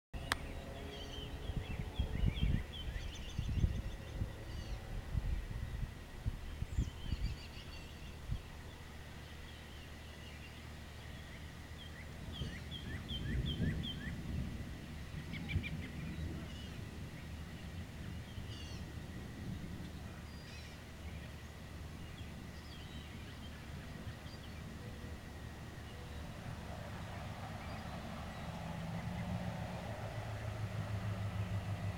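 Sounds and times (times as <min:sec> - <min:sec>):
low outdoor rumble: 0:00.2 - 0:31.9
songbirds chirping: 0:00.2 - 0:31.9
broad rushing noise: 0:10.6 - 0:31.9.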